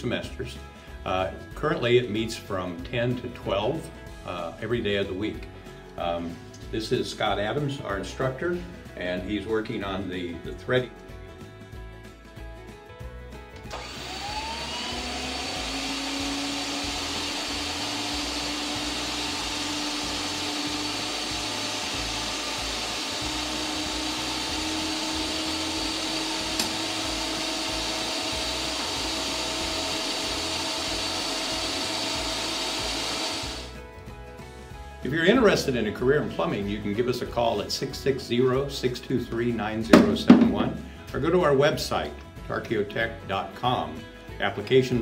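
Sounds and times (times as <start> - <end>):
pipe-threading machine motor whirring: 13.6 - 33.8.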